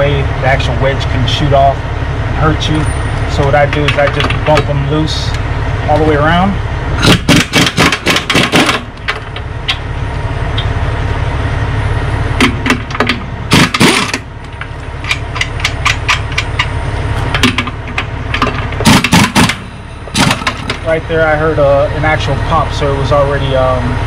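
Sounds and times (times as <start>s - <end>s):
low rumble: 0.0s - 24.0s
pneumatic impact gun hammering: 7.0s - 9.4s, 12.4s - 16.7s, 18.4s - 20.8s
wedge popping loose: 7.0s - 9.8s, 12.4s - 20.8s.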